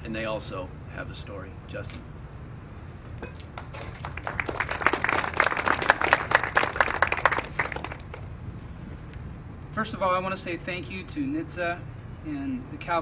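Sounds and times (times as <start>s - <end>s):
audience applauding: 3.6s - 8.2s.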